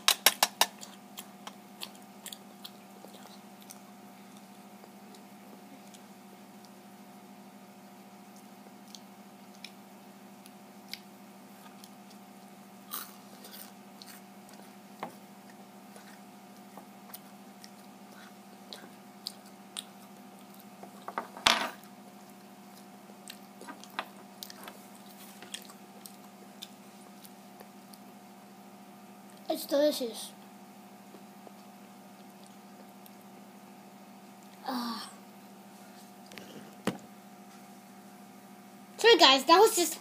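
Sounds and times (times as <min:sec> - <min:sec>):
faint steady hum: 0:00.0 - 0:40.0
person chewing crunchy food: 0:00.7 - 0:06.7, 0:10.4 - 0:21.1, 0:21.8 - 0:28.1.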